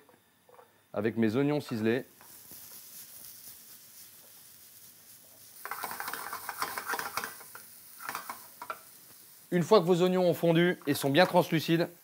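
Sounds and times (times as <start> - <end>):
onion sizzling in oil: 1.2 - 12.0
spatula scraping a pan: 5.5 - 8.8.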